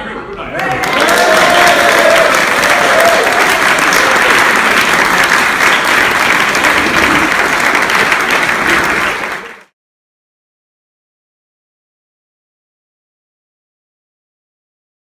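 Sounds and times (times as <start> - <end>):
audience applauding: 0.6 - 9.7.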